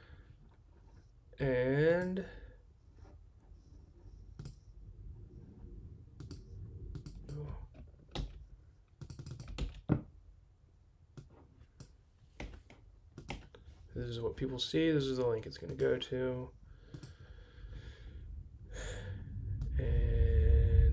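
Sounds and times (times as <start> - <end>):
computer keyboard typing: 9.0 - 9.9, 13.2 - 13.6.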